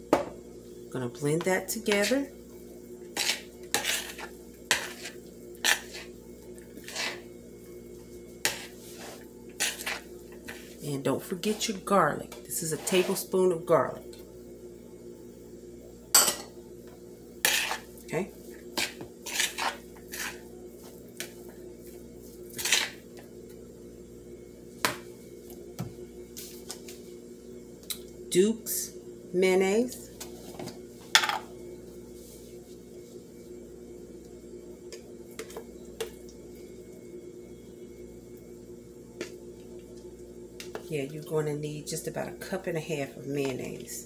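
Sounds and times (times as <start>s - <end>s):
faint steady hum: 0.0s - 44.0s
metal utensil scraping a bowl: 3.2s - 6.1s, 6.8s - 7.2s, 12.6s - 13.3s, 17.4s - 17.9s, 18.8s - 20.4s
squishing of salad mixture: 17.5s - 23.0s.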